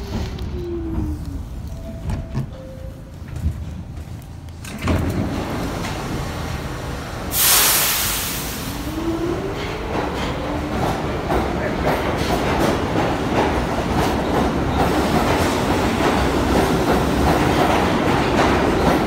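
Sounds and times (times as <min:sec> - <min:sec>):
subway train rumbling: 0:00.0 - 0:19.0
air hiss burst: 0:07.3 - 0:08.9.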